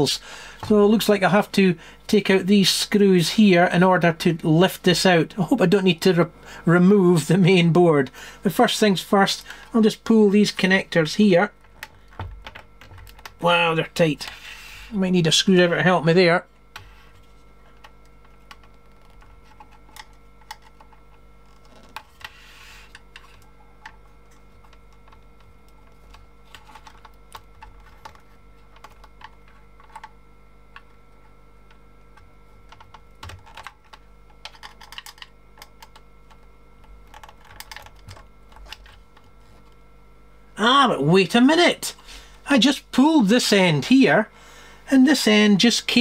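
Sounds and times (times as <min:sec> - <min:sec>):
steady electrical hum: 0:00.0 - 0:46.0.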